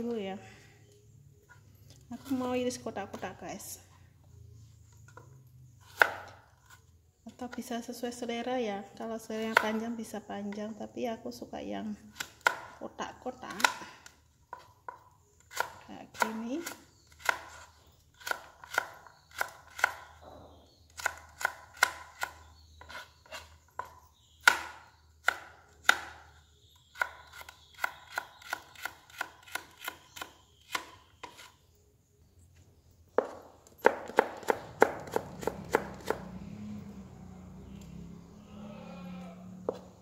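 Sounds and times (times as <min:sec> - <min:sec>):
knife chopping on cutting board: 0:05.8 - 0:06.4, 0:33.2 - 0:36.3.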